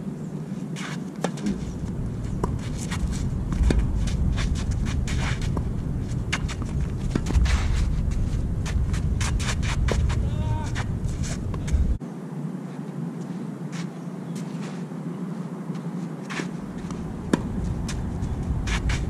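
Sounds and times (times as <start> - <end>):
shoes scuffing on court: 0.6 - 12.0, 13.2 - 14.9, 15.7 - 19.0
low rumble: 1.4 - 12.0, 16.6 - 19.0.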